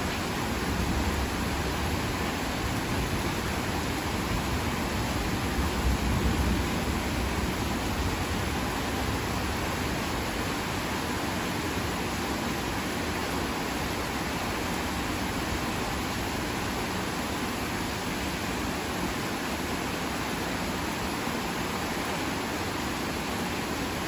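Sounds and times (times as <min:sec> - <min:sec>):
heavy rain falling: 0:00.0 - 0:24.0.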